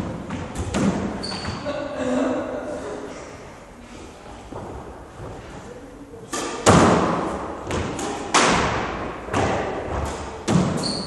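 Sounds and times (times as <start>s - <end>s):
squash ball knocks: 0.0s - 1.2s, 6.3s - 10.8s
shoe squeak: 1.2s - 1.7s, 10.6s - 11.0s.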